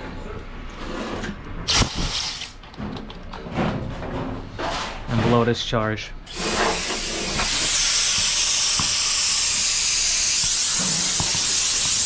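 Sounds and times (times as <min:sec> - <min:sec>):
loud gas hiss: 0:06.3 - 0:12.0.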